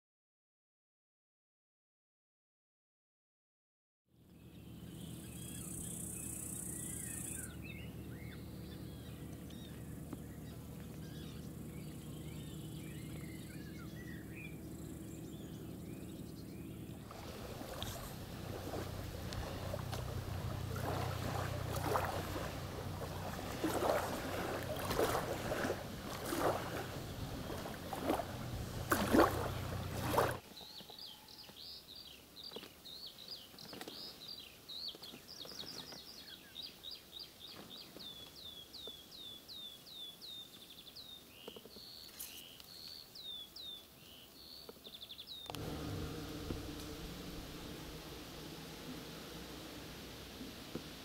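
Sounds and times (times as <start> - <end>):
wind: 4.1 - 51.0
low steady noise: 4.3 - 30.4, 45.5 - 51.0
waves lapping at shore: 14.5 - 30.4, 45.5 - 51.0
water splashing: 16.8 - 30.4, 45.5 - 51.0
bird calling high notes: 45.5 - 51.0.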